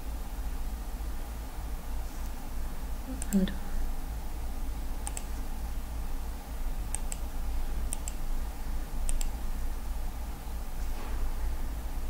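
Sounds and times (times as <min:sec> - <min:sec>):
steady low hum: 0:00.0 - 0:12.0
computer mouse clicking: 0:05.0 - 0:05.4, 0:06.9 - 0:07.3, 0:07.9 - 0:08.2, 0:09.0 - 0:09.4.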